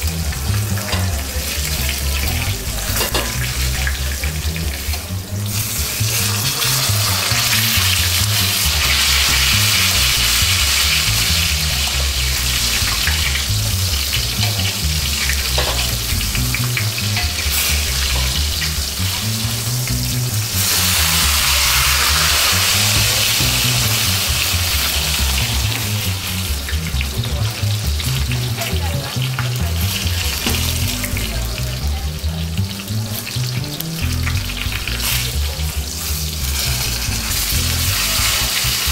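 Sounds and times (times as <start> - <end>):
background music with bass line: 0.0 - 38.9
steak sizzling in oil: 0.0 - 38.9.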